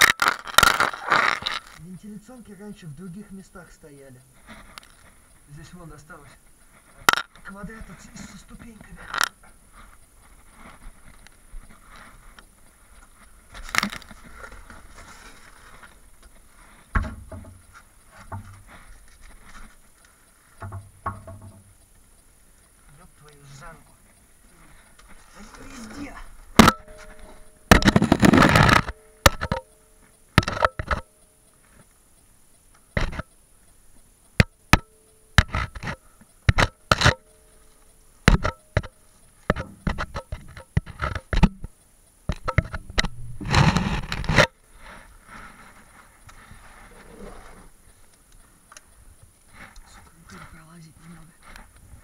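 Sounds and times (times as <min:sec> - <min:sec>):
knocks and clunks: 0:16.9 - 0:18.6, 0:20.6 - 0:21.7
knocks and scrapes: 0:42.3 - 0:46.8.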